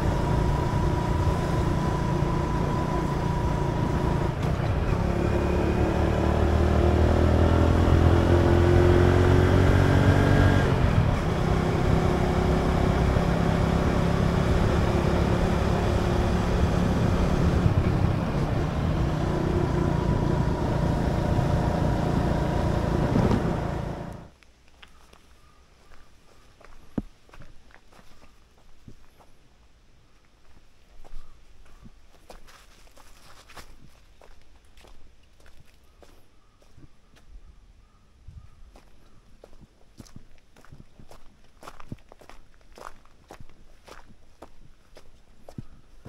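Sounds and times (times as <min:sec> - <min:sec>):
motorcycle engine accelerating: 0:00.0 - 0:24.3.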